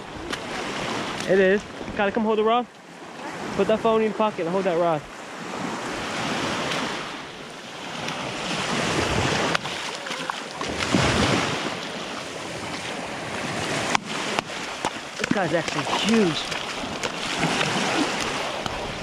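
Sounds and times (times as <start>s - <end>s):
small waves breaking on shore: 0.0s - 19.0s
wind buffeting microphone: 10.5s - 19.0s.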